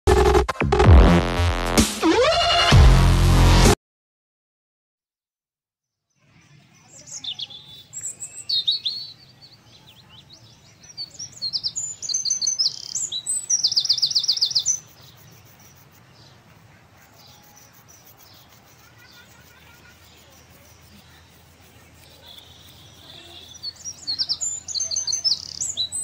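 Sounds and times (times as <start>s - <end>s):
songbirds chirping: 5.9s - 26.0s
bird trill: 6.1s - 26.0s.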